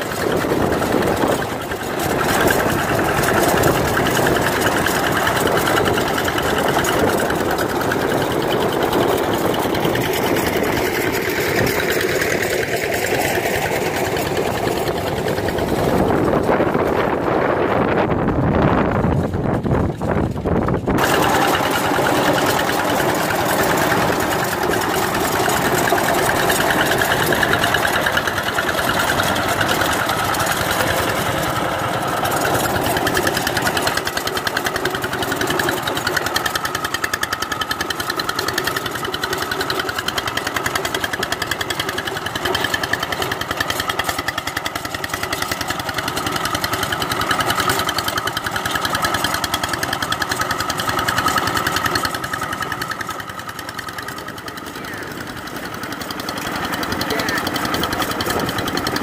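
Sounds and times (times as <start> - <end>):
diesel engine knocking under load: 0.0 - 59.0
rotary tiller churning wet soil: 0.0 - 59.0.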